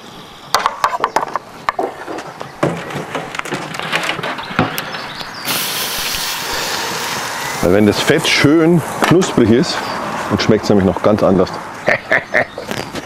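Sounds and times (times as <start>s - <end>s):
meat sizzling on grill: 5.5s - 8.2s.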